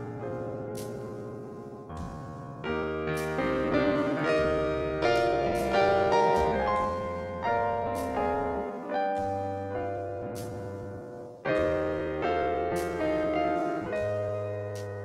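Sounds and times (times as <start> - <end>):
slow keyboard chords: 0.0 - 15.0.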